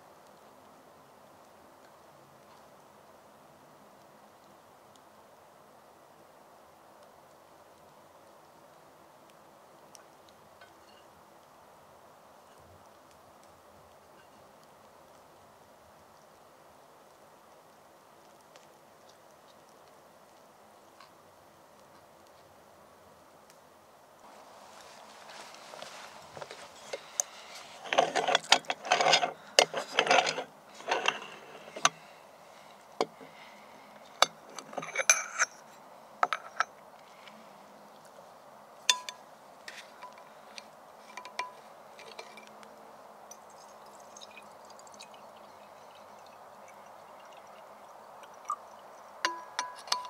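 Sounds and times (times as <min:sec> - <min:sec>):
moka pot threads scraping: 0:24.3 - 0:32.2, 0:34.1 - 0:36.7, 0:38.9 - 0:42.6, 0:48.2 - 0:50.0
metal parts clinking on wood: 0:27.8 - 0:32.0.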